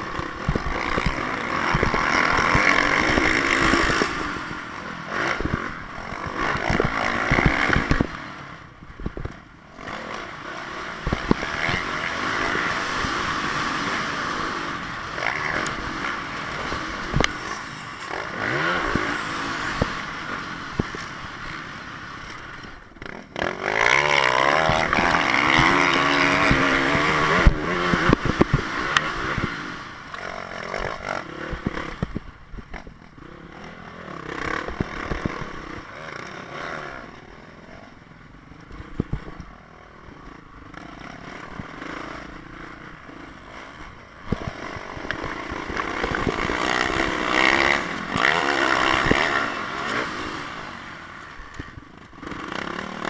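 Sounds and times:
motocross bike engine revving: 0.0s - 53.0s.

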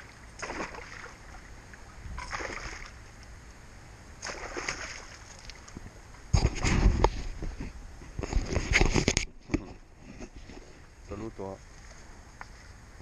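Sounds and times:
fish splashing in water: 0.0s - 3.0s, 4.2s - 5.8s.

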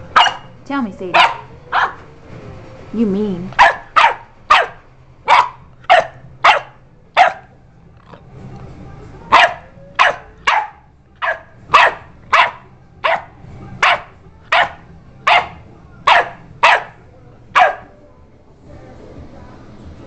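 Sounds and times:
puppy barking: 0.1s - 2.1s, 3.5s - 7.5s, 9.3s - 17.9s.

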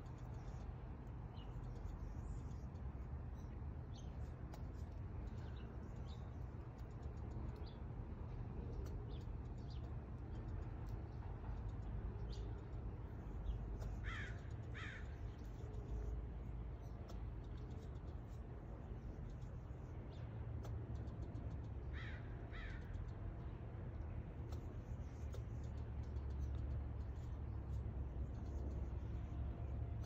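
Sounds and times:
squirrel harsh falling calls: 14.0s - 15.2s.

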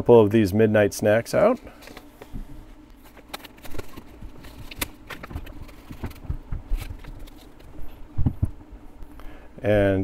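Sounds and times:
faint steady hum: 0.0s - 10.0s
paper packet crinkling: 3.0s - 7.8s
soft low thumps: 5.3s - 7.0s, 7.7s - 8.8s.

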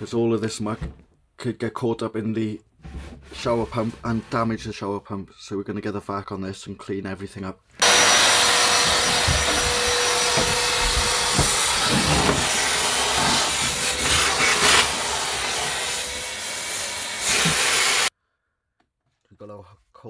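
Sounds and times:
vacuum cleaner running: 7.8s - 18.1s.

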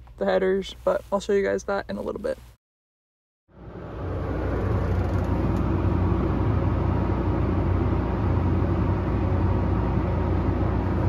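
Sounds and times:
tractor engine drone: 3.5s - 11.0s
combine harvester running: 3.6s - 11.0s.

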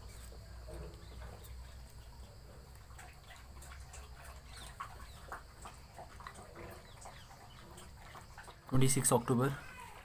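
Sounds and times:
birds chirping: 0.0s - 10.0s.

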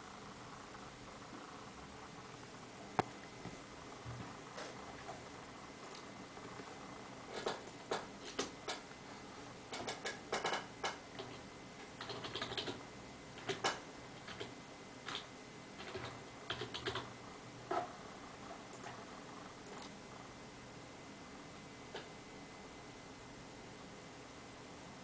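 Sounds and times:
keyboard typing: 9.7s - 12.8s, 13.4s - 17.1s.

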